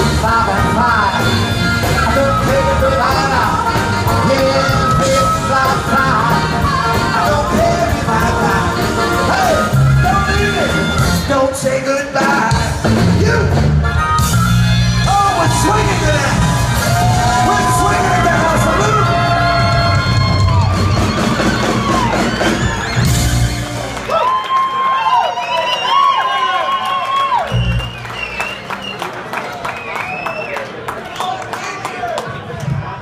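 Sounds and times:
live blues band: 0:00.0 - 0:24.9, 0:27.3 - 0:29.1
person singing and shouting: 0:15.0 - 0:20.3.

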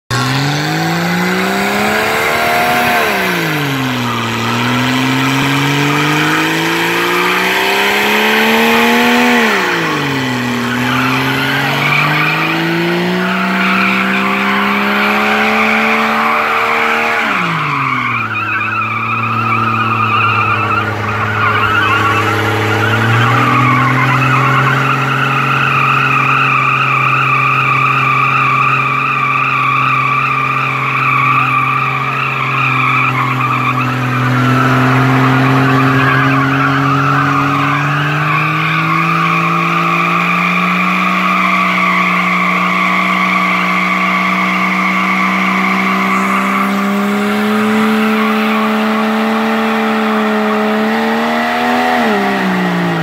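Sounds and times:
car engine revving hard: 0:00.0 - 0:53.0
tyres squealing: 0:00.1 - 0:53.0.

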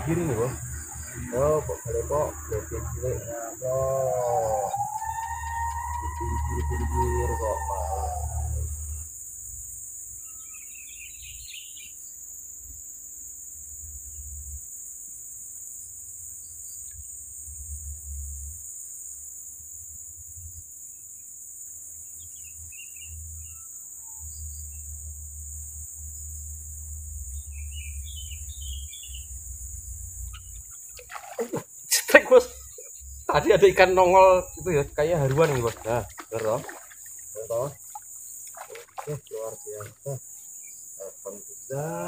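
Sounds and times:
bird chirps: 0:00.0 - 0:09.0, 0:10.2 - 0:12.0, 0:27.3 - 0:29.4, 0:30.2 - 0:41.5
high-pitched insect chorus: 0:00.0 - 0:42.0.

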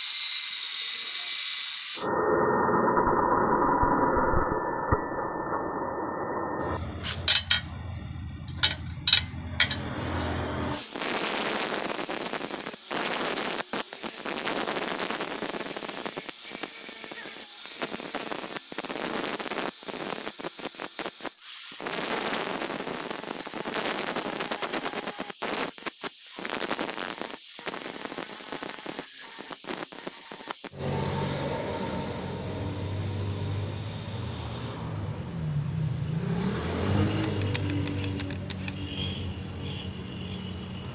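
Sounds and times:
angle grinder grinding steel: 0:08.5 - 0:31.0
sharp clicks: 0:37.2 - 0:38.8.

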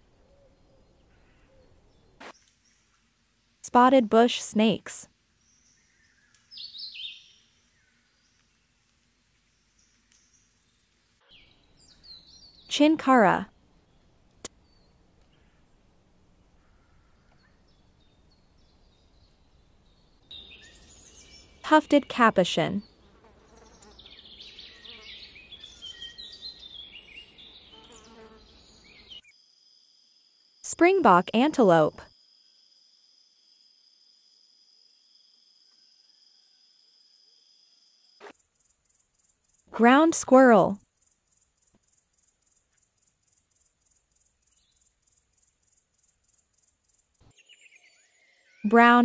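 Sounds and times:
high-pitched insect chirping: 0:32.1 - 0:39.7, 0:40.8 - 0:47.2.

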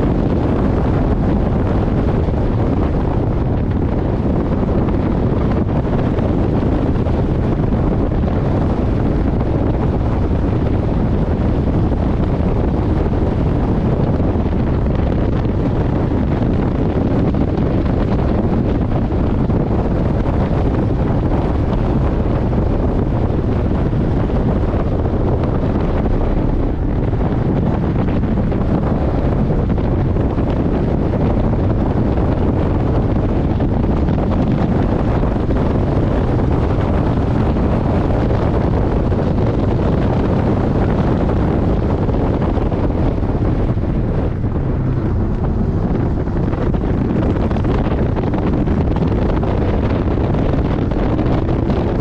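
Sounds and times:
road noise: 0:00.0 - 0:52.0
wind buffeting microphone: 0:00.0 - 0:52.0
car engine: 0:23.3 - 0:31.1, 0:42.9 - 0:47.5.

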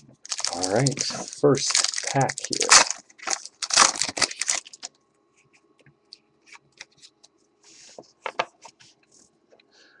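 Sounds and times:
wrapper rustling: 0:00.2 - 0:04.9.

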